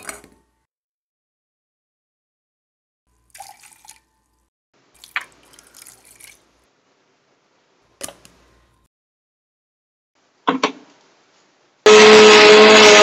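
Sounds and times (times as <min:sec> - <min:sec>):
water pouring into metal jar: 0:03.2 - 0:04.4, 0:05.0 - 0:06.4.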